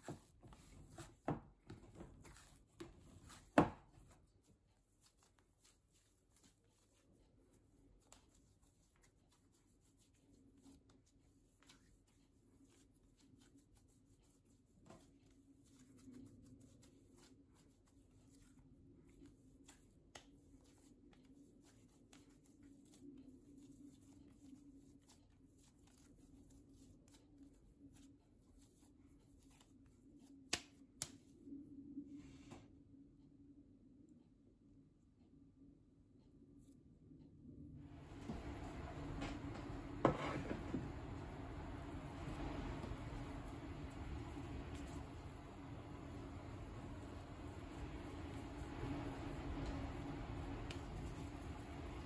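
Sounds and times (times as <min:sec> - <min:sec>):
hands kneading dough: 0:00.0 - 0:32.0, 0:37.8 - 0:52.0
steady low hum: 0:32.9 - 0:52.0.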